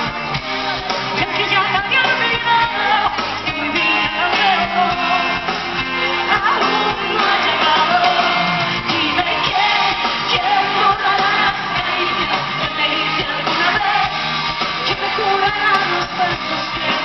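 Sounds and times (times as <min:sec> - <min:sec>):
live rock band with drums: 0:00.0 - 0:17.0
woman singing into a microphone: 0:01.1 - 0:17.0.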